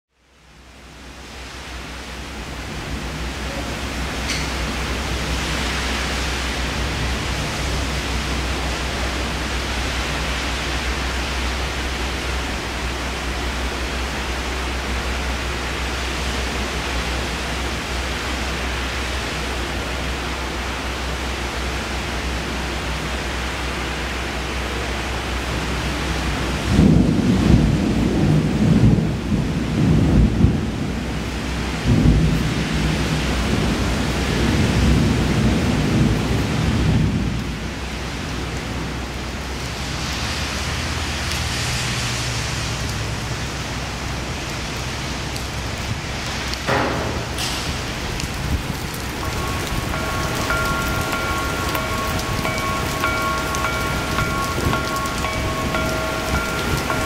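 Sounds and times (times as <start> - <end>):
heavy rain hissing: 0.3 - 57.0
low thunder rumbles: 26.6 - 37.7, 45.6 - 57.0.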